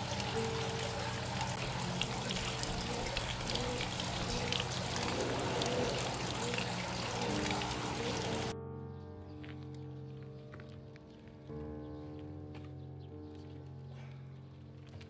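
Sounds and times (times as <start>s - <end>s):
water trickling and splashing: 0.0s - 8.6s.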